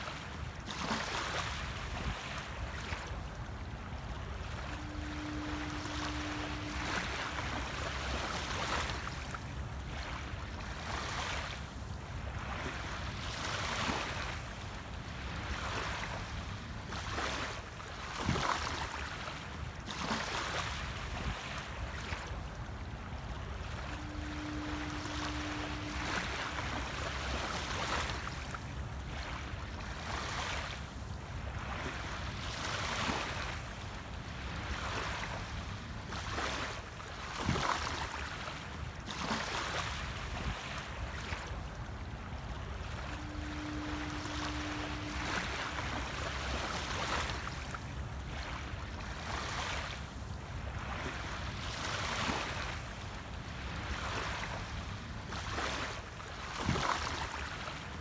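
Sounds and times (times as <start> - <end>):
faint steady hum: 0.0 - 58.0
small waves lapping on shore: 0.0 - 58.0
wind on microphone: 0.7 - 11.0, 20.8 - 30.2, 40.0 - 49.2.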